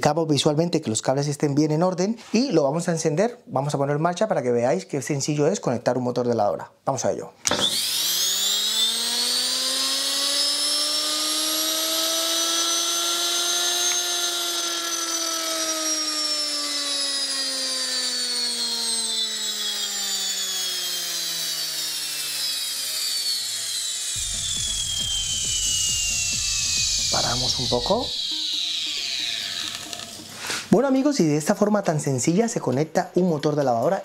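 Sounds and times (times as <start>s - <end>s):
electric motor whine: 7.5s - 30.7s
low rubbing noise: 24.2s - 30.8s
brush hiss: 30.2s - 30.8s.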